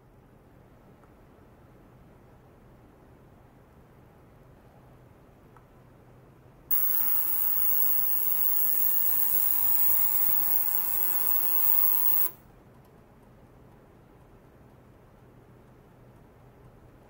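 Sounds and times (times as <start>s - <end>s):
ultrasonic cleaner buzzing: 6.7s - 12.4s.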